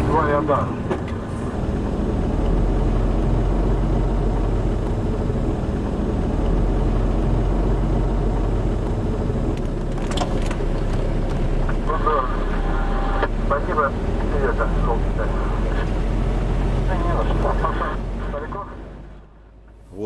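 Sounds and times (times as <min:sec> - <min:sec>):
diesel engine rumble: 0:00.0 - 0:20.0
tyres on wet road: 0:00.0 - 0:20.0.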